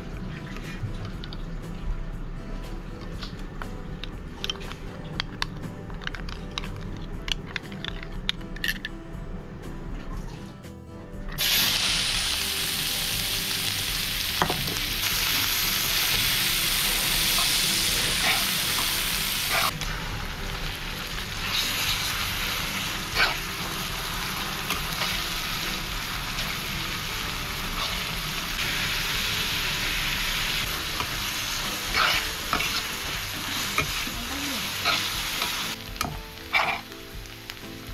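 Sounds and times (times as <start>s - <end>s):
onions sizzling in hot oil: 11.4s - 37.9s
metal spatula scraping a pan: 31.9s - 33.9s.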